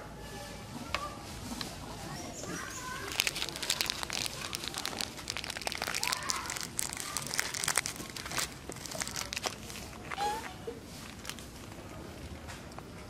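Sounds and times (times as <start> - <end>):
crackling and clicking: 2.7 - 10.2.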